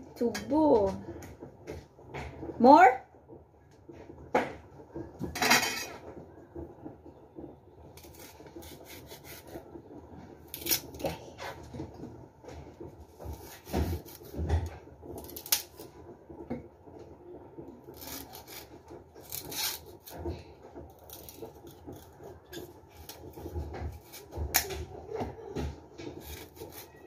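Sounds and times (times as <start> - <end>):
knife scraping sugarcane rind: 8.0 - 9.6, 10.5 - 11.0, 13.3 - 14.4, 15.2 - 15.8, 17.9 - 20.2, 21.0 - 24.6, 26.1 - 27.0.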